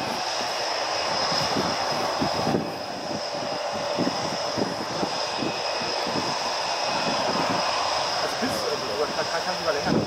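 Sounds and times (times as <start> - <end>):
jet engine whine and rumble: 0.0 - 10.0.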